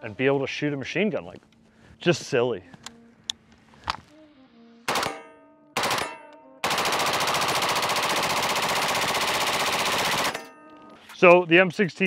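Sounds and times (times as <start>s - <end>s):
rifle automatic fire: 4.9s - 5.2s, 5.8s - 10.4s.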